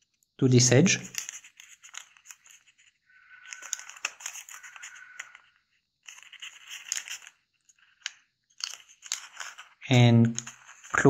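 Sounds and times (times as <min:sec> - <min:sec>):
paper crinkling and rustling: 0:01.0 - 0:11.0.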